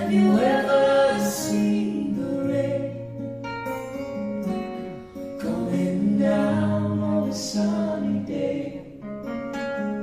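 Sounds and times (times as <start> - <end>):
voices singing: 0.0 - 3.2, 5.4 - 9.1
acoustic guitars: 0.0 - 10.0.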